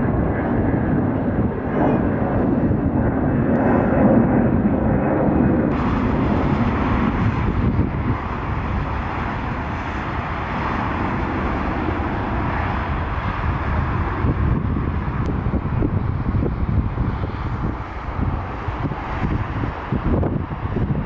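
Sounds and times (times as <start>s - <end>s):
jet engines roaring: 0.0s - 21.0s
rushing rumble of jet engines: 0.0s - 21.0s.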